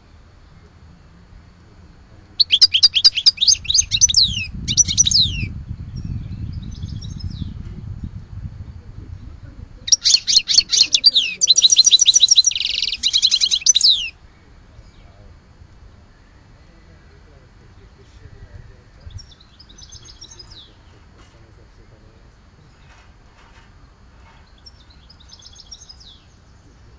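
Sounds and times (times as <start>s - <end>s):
songbird twittering: 1.9s - 8.3s, 9.1s - 23.0s, 24.4s - 26.9s
low rumble: 3.6s - 9.9s.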